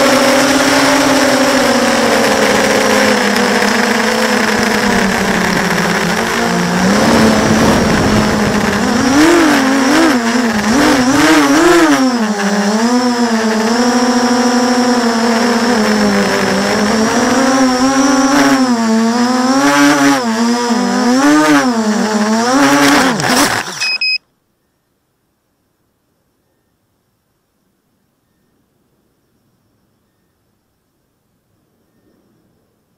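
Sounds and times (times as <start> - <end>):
drone motors whining: 0.0 - 24.2.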